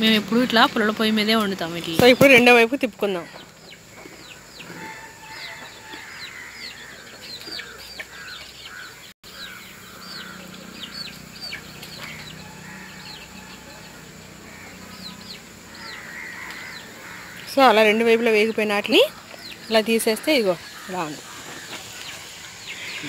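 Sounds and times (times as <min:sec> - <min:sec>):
birds chirping high peeps: 0:00.0 - 0:23.0.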